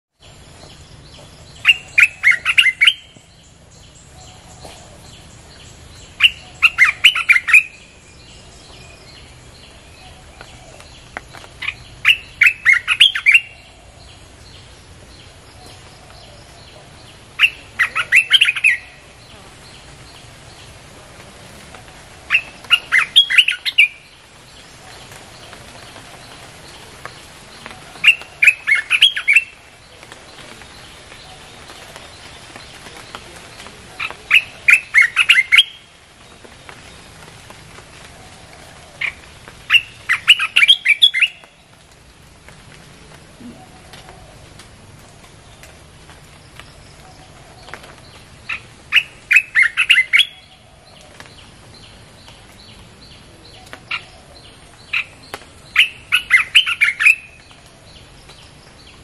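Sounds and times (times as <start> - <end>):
bird song phrase: 0.2 - 37.1, 38.3 - 41.8, 46.4 - 59.0.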